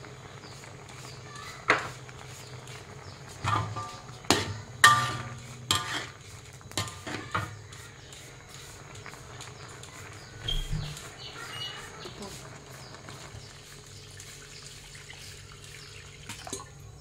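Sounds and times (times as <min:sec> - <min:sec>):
metal spatula clanking on wok: 0:03.4 - 0:07.6.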